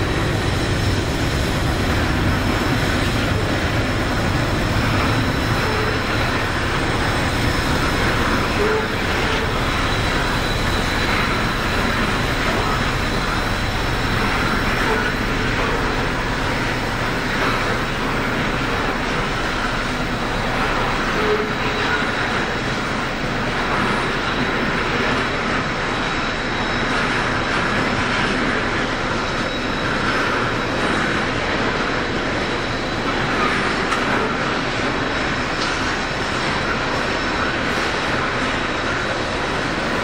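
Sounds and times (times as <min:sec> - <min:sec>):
train wagons rolling on rails: 0:00.0 - 0:40.0.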